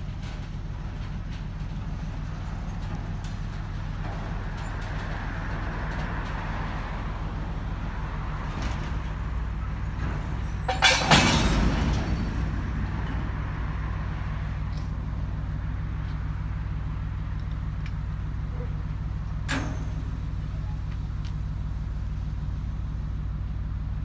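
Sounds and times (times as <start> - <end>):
diesel locomotive running: 0.0 - 24.0
wagon couplers clanking: 9.9 - 13.8.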